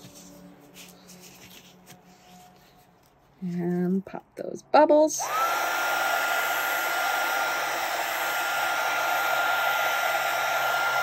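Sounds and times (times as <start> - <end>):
heat gun motor whine: 5.2 - 11.0.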